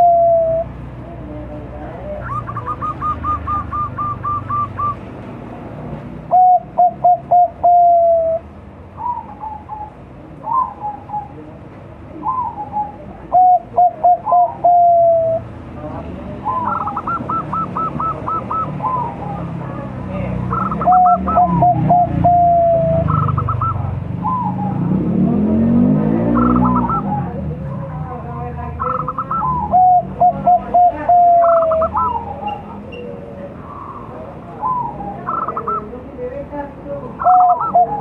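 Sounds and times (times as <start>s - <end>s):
fainter higher dove calls: 0.0s - 0.8s, 1.8s - 5.0s, 6.3s - 11.5s, 12.2s - 15.4s, 16.4s - 19.8s, 20.5s - 24.8s, 26.2s - 27.4s, 28.8s - 36.0s, 37.2s - 38.0s
dove cooing: 0.0s - 5.0s, 6.3s - 36.1s, 37.0s - 38.0s.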